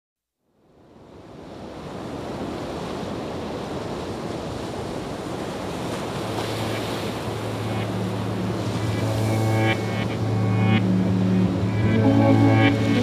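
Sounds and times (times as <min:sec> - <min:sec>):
floodwater rushing: 0:04.7 - 0:13.0.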